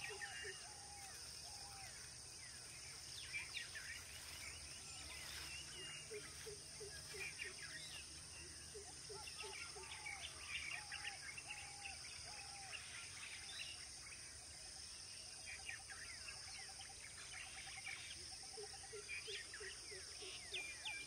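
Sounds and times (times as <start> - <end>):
birds calling and chirping: 0.0 - 14.3.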